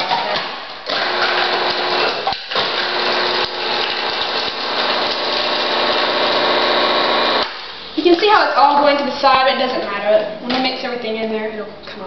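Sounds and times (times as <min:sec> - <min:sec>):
food processor motor whirring: 0:00.9 - 0:07.6.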